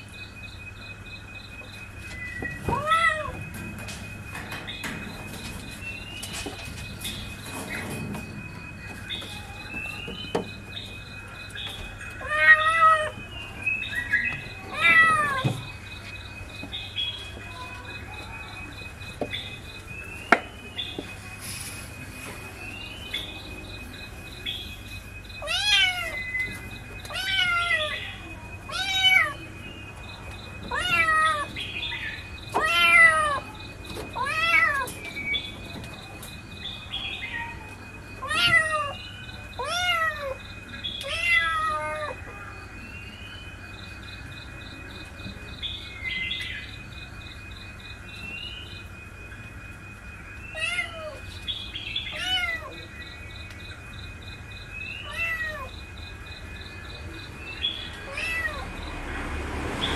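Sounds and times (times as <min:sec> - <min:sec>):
kitten meowing: 0:58.1 - 0:58.6.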